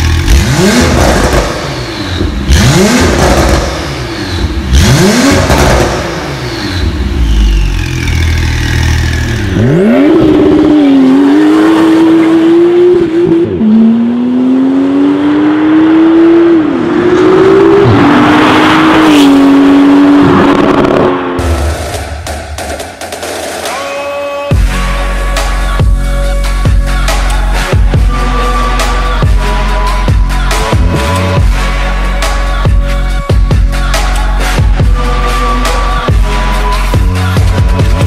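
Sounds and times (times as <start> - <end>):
sports car engine revving and accelerating: 0.0 - 21.6.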